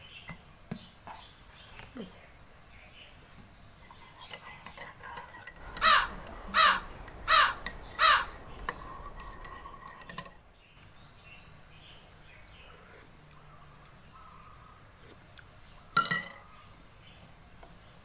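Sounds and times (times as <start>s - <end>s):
crow cawing: 5.6s - 9.8s.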